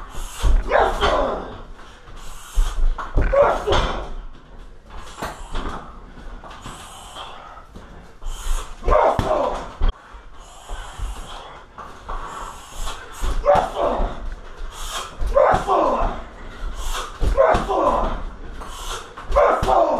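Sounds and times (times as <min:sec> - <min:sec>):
short sharp grunts: 0:00.0 - 0:01.7, 0:02.3 - 0:04.2, 0:08.3 - 0:09.9, 0:12.6 - 0:19.9.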